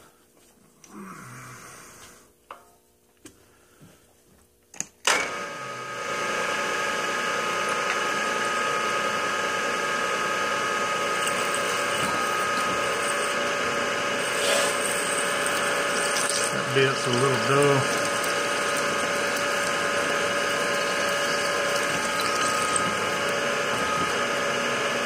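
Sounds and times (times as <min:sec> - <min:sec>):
milling machine whining: 0:05.2 - 0:25.0
drill bit cutting aluminium: 0:10.6 - 0:25.0.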